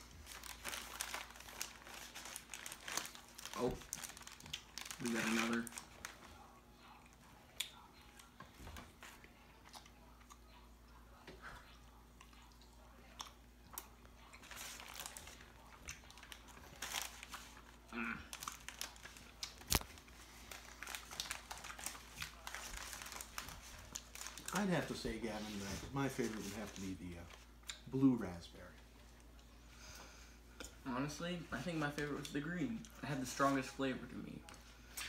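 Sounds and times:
plastic bag crinkling: 0.0s - 6.5s, 14.3s - 27.4s
faint chewing: 1.8s - 24.5s.

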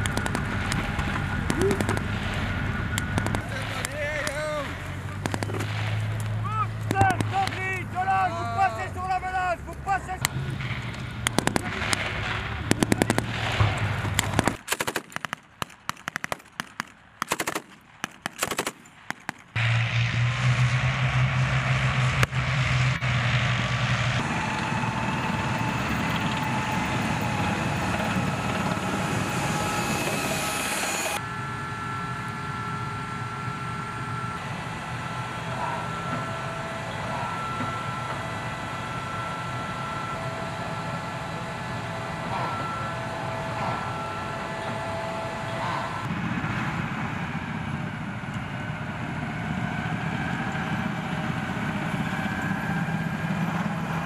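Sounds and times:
tank turbine engine whine: 0.0s - 14.7s, 18.8s - 54.0s
rapid gunfire: 1.4s - 2.5s, 3.1s - 3.8s, 5.2s - 6.1s, 6.9s - 7.6s, 11.3s - 19.6s.

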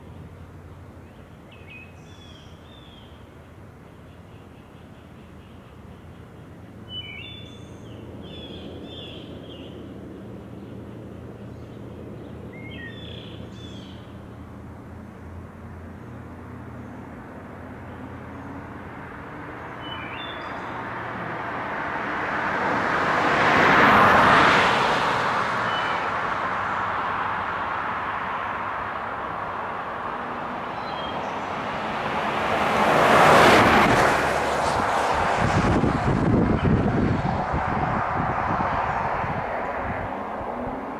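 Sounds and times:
birds chirping: 1.0s - 21.0s, 25.6s - 27.0s, 30.6s - 31.8s
car passing by: 6.8s - 40.9s.

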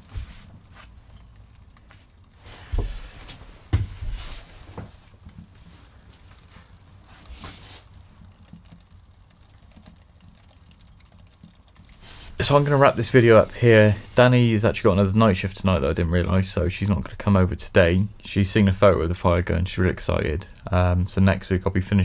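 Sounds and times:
fire crackling: 0.0s - 18.8s.

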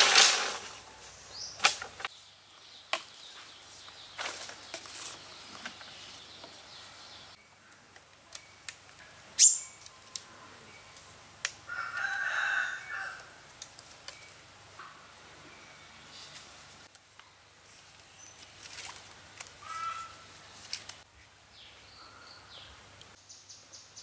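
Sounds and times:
sticks knocking and rustling: 0.0s - 0.9s, 1.5s - 2.1s, 2.8s - 3.5s, 4.1s - 6.6s
stick cracking: 1.6s - 2.1s
rooster crowing: 11.7s - 13.4s.

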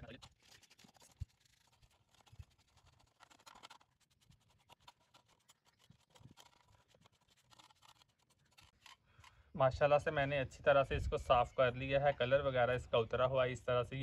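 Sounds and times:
metal lantern scratching and clicking: 0.0s - 9.3s.

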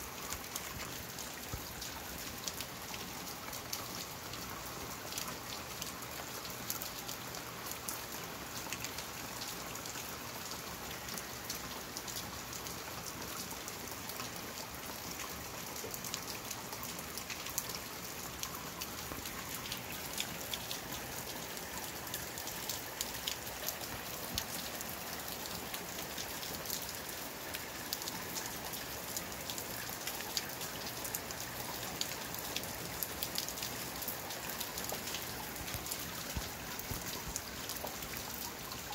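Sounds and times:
steady rain: 0.0s - 38.9s
raindrops tapping: 33.3s - 38.9s.

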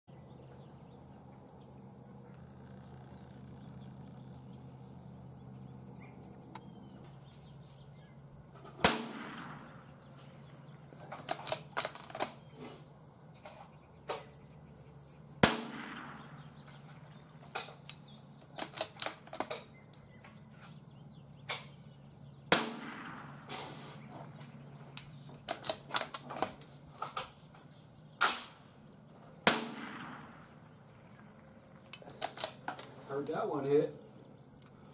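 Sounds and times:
rifle shots with echo: 8.8s - 10.1s, 15.4s - 16.7s, 22.5s - 23.6s, 28.2s - 28.7s, 29.4s - 30.8s.

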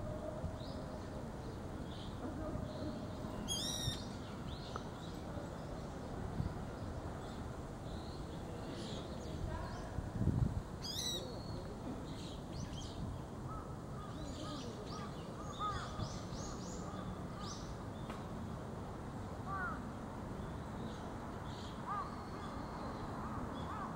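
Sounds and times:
steady low background noise: 0.0s - 23.9s
small birds chirping: 0.6s - 9.9s
birds calling: 2.0s - 4.8s.

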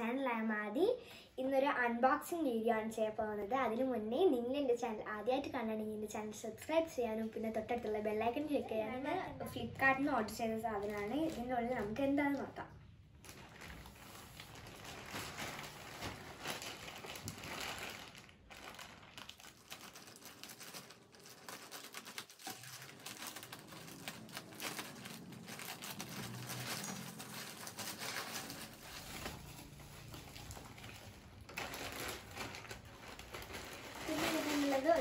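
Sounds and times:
plastic mailer bag crinkling: 10.7s - 12.5s, 13.2s - 35.0s.

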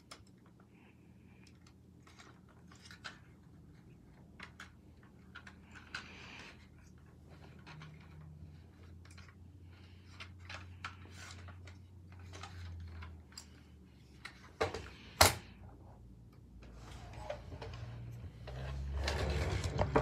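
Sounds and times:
toy car clicking and rattling: 4.1s - 13.6s.

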